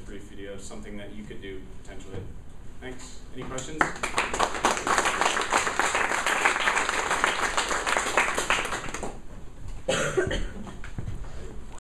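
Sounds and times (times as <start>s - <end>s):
audience clapping: 3.8s - 9.2s
person coughing: 9.9s - 10.7s.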